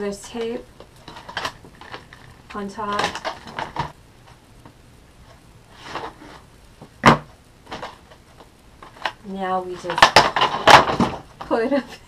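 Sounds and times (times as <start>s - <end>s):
plastic packaging rustling: 0.2s - 4.4s, 5.2s - 11.8s
plastic packaging cracking: 0.4s - 4.0s, 8.8s - 11.4s.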